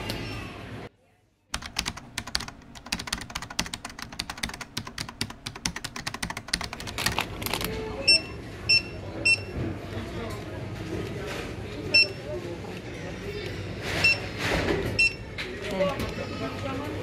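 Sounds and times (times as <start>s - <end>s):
checkout scanner beep: 8.0s - 9.6s, 11.9s - 12.3s, 14.0s - 14.3s, 14.9s - 15.3s.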